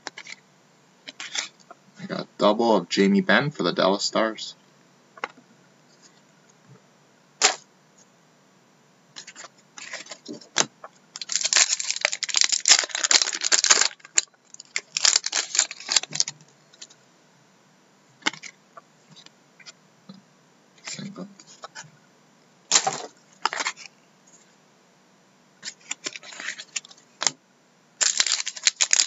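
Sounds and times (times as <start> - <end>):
foil wrapper crinkling: 11.2 - 16.4, 22.7 - 23.9, 25.6 - 27.0, 28.0 - 29.0.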